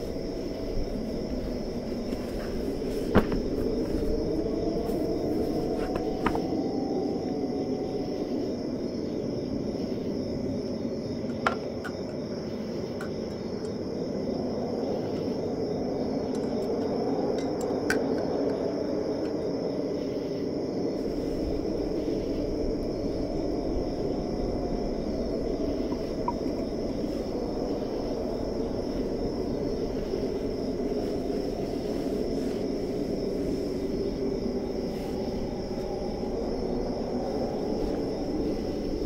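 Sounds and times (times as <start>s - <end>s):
wind rushing: 0.0s - 11.3s, 13.4s - 39.0s
crickets trilling: 0.0s - 39.0s.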